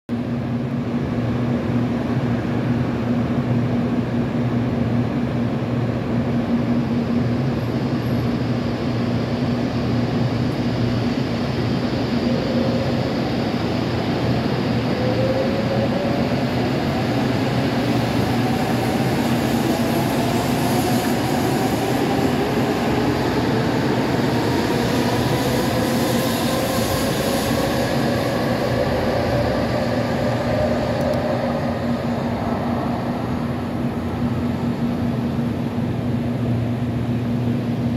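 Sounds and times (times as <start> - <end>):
train hum: 0.1 - 37.9
train whine rising in pitch: 8.1 - 36.2.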